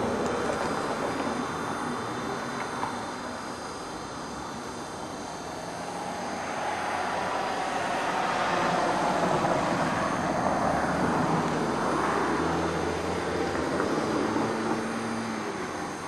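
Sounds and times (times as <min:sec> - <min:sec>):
passing vehicle rushing: 0:05.7 - 0:16.0.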